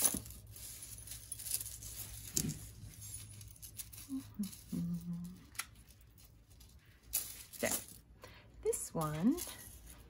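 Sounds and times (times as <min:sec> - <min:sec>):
low steady hum: 0:00.0 - 0:10.0
metal chains clinking: 0:00.0 - 0:10.0.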